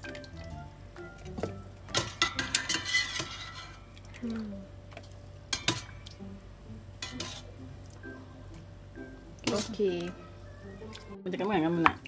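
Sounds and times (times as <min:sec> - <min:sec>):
metal tongs clanking on pot: 0:01.3 - 0:04.0, 0:05.5 - 0:06.1, 0:07.0 - 0:07.5, 0:09.4 - 0:10.1.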